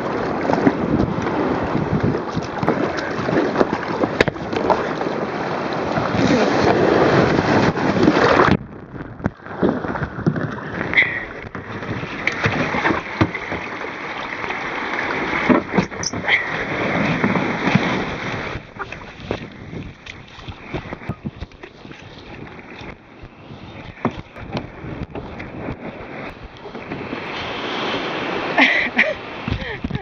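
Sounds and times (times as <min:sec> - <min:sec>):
muffled underwater rumble: 0:00.0 - 0:13.0
splashes and knocks on kayak hull: 0:00.0 - 0:28.5
surf and rushing water: 0:00.0 - 0:30.0.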